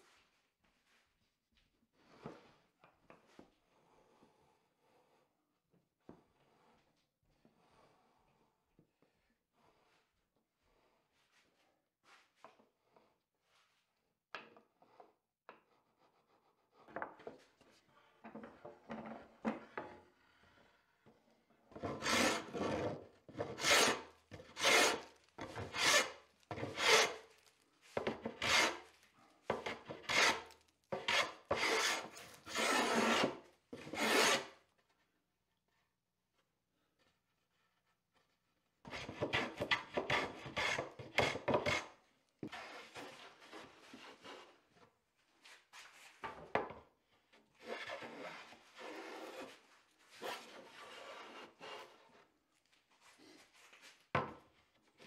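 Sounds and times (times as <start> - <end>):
hand plane shaving wood: 21.8 - 27.4, 28.0 - 28.9, 29.5 - 34.6, 38.9 - 44.6, 47.6 - 52.3.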